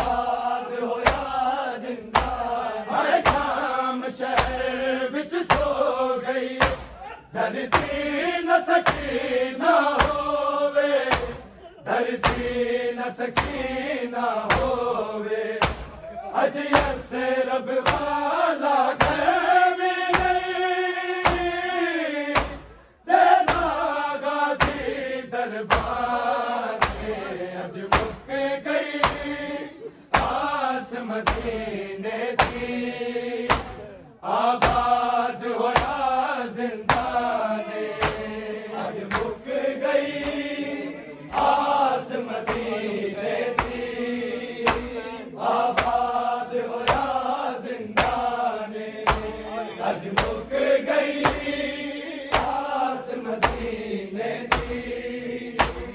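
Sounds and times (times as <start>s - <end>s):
men chanting a sung lament: 0.0s - 55.9s
hands beating on chests: 1.0s - 3.6s, 4.3s - 4.7s, 5.4s - 5.9s, 6.6s - 7.1s, 7.7s - 8.2s, 8.8s - 11.6s, 12.2s - 12.7s, 13.3s - 13.8s, 14.4s - 14.9s, 15.5s - 16.0s, 17.8s - 20.6s, 21.2s - 21.7s, 22.3s - 22.7s, 23.3s - 23.9s, 24.5s - 25.0s, 25.7s - 27.3s, 27.9s - 29.5s, 30.1s - 30.6s, 31.2s - 31.6s, 32.4s - 32.8s, 33.4s - 33.8s, 34.6s - 35.1s, 35.7s - 36.2s, 36.8s - 37.3s, 37.9s - 38.4s, 43.4s - 44.0s, 44.6s - 45.0s, 45.7s - 46.2s, 46.8s - 47.2s, 49.0s - 49.4s, 51.1s - 51.6s, 52.3s - 52.8s, 53.4s - 53.8s, 54.4s - 55.9s.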